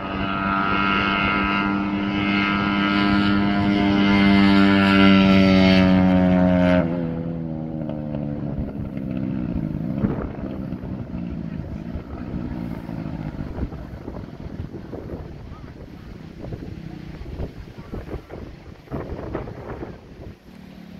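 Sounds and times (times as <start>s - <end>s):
engines passing at speed: 0.0s - 20.9s.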